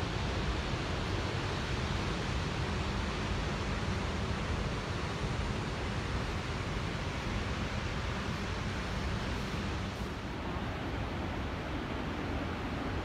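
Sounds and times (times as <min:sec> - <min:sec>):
wind and road noise: 0:05.8 - 0:13.0.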